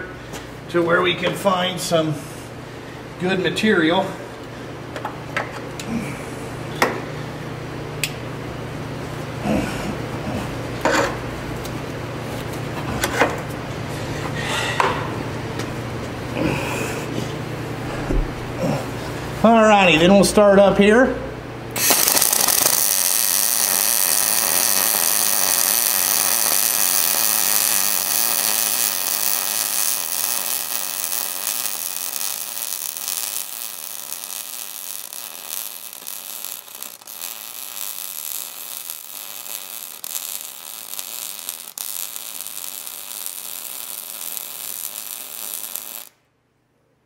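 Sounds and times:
welding arc crackling hiss: 21.7s - 46.2s.

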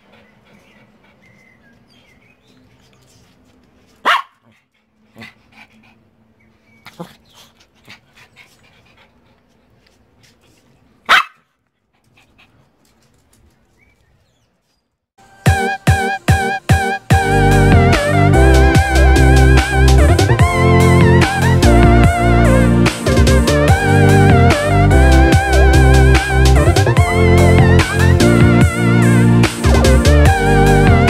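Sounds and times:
small dog barking: 4.0s - 4.6s, 11.0s - 11.5s
music: 15.2s - 31.0s.

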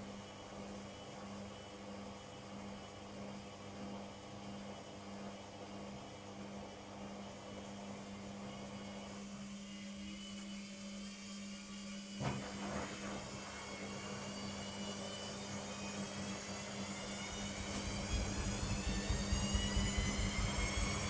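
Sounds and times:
washing machine motor humming: 0.0s - 21.0s
washing machine spin whine: 0.0s - 21.0s.

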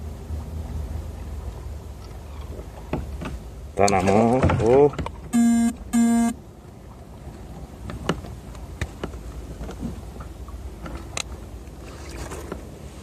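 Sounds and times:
horn-like toots: 5.4s - 6.4s.

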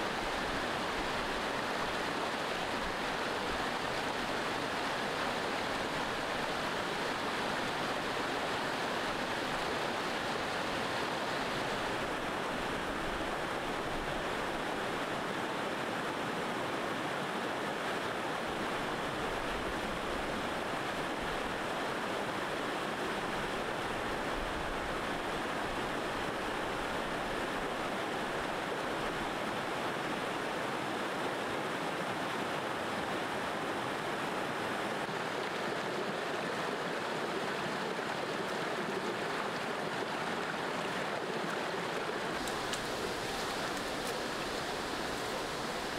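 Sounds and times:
river rapids rushing over rocks: 0.0s - 45.9s.

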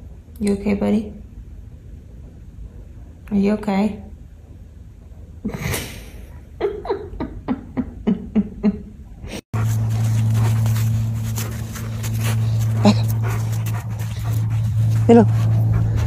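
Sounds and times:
steady low hum: 0.0s - 16.0s
dog honking: 9.6s - 16.0s
dog sniffing: 9.6s - 16.0s.

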